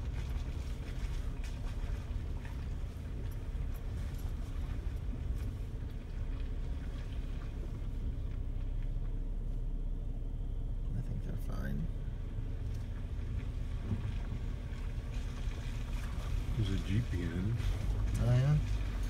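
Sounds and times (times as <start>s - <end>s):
car engine running low: 0.0s - 19.0s.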